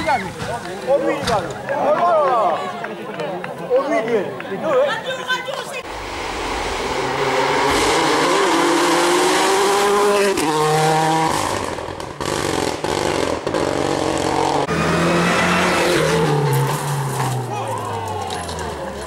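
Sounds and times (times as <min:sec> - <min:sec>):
rally car engine revving: 0:05.9 - 0:17.6.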